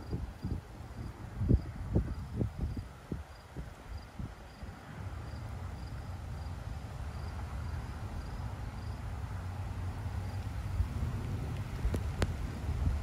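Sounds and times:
cricket chirping: 0.0 - 9.1, 10.2 - 10.9
low rumble: 7.5 - 13.0.

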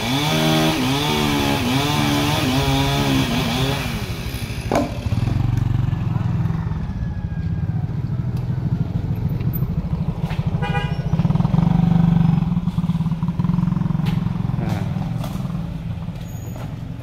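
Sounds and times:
motorcycle engine running: 4.5 - 16.5.

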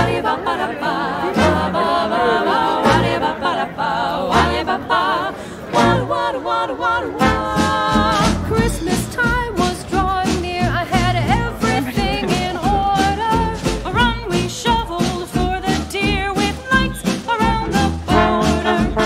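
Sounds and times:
person singing with vibrato: 0.0 - 19.0
low drum thumps: 7.2 - 19.0.

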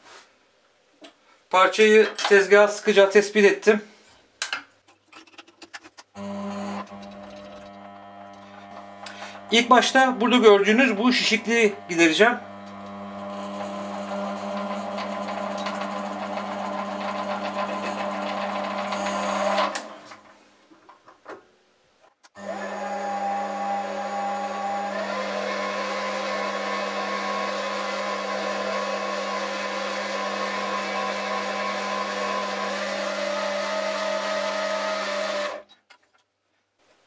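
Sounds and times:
lathe motor and spindle hum: 6.2 - 20.4, 22.4 - 35.6.

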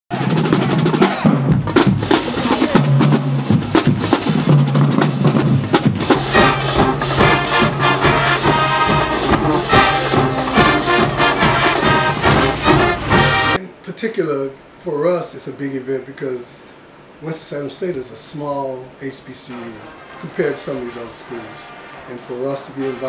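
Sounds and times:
drumline hits: 0.1 - 13.6
marching band playing: 0.1 - 13.6
cymbals crashing: 6.0 - 13.6
low held brass notes: 6.0 - 13.6.

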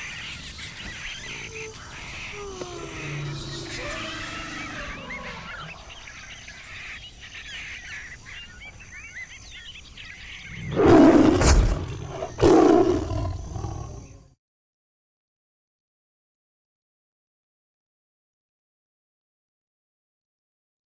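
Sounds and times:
birds chirping: 0.0 - 14.3
tiger roaring: 1.2 - 6.1, 10.5 - 14.2.

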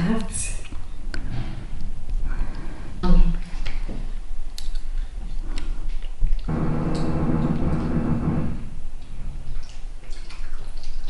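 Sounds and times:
steady pitched hum: 0.0 - 10.4.

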